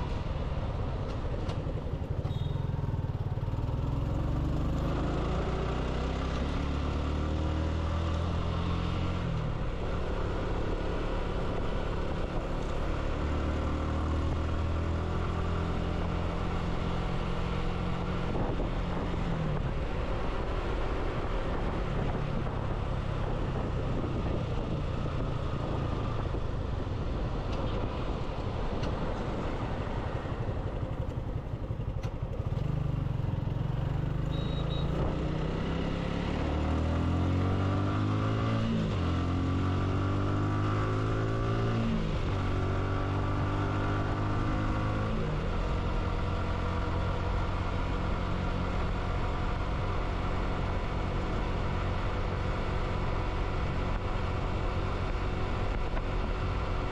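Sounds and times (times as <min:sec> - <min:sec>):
wind and road noise: 0:00.0 - 0:56.9
motorcycle engine running: 0:00.7 - 0:07.6, 0:08.6 - 0:36.6.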